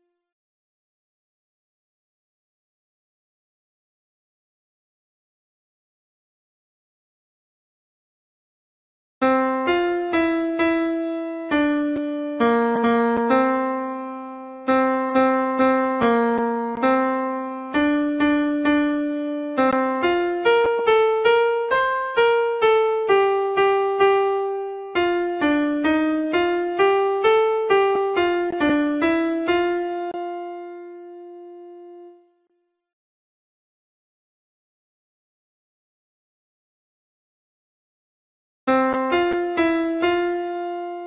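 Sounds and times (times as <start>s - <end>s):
piano playing single notes: 9.2s - 32.3s.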